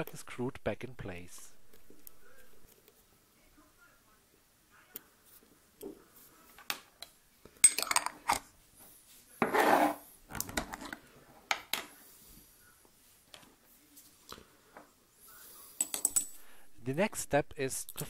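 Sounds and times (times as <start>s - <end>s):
object scraping on table: 9.4s - 10.1s.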